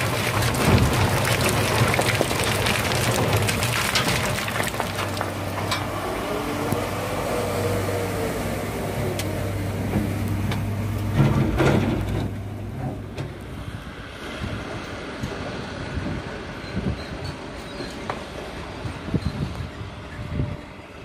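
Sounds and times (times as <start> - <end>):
truck body rattling: 0.0 - 6.0, 9.8 - 13.4
truck diesel engine: 0.0 - 16.6.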